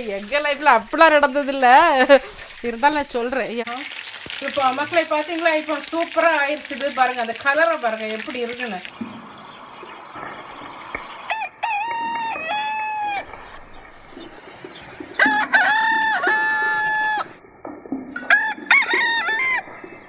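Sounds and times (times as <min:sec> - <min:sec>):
rooster crowing: 0:11.3 - 0:13.3, 0:15.1 - 0:17.4, 0:18.3 - 0:19.7.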